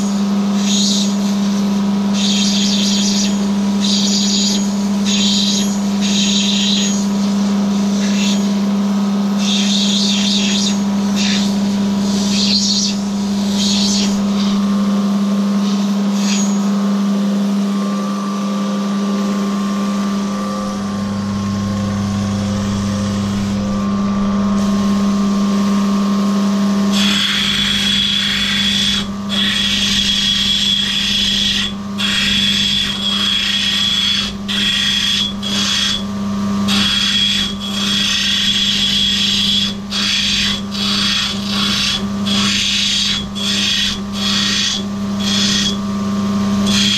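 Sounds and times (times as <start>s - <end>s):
grinding machine motor hum: 0.0s - 46.9s
stone grinding on wheel: 7.9s - 8.6s, 9.4s - 14.7s, 15.6s - 16.7s, 26.9s - 45.8s, 46.6s - 46.9s.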